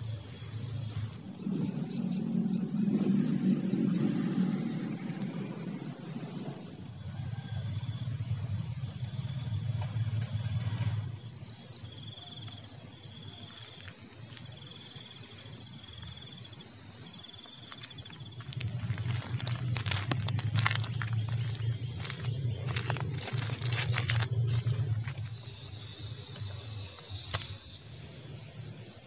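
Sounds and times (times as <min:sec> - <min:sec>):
insects trilling chorus: 0:00.0 - 0:29.0
lower pulsing insect trill: 0:00.0 - 0:29.0
low rumble: 0:00.1 - 0:11.7, 0:18.0 - 0:28.7
footsteps on gritty path: 0:17.6 - 0:25.7.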